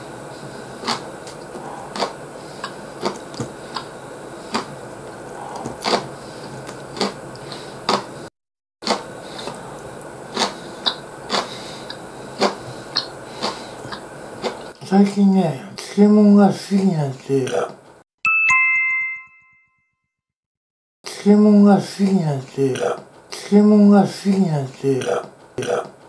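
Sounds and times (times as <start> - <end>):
chewing crisp vegetables: 0.8 - 8.1, 8.8 - 14.8.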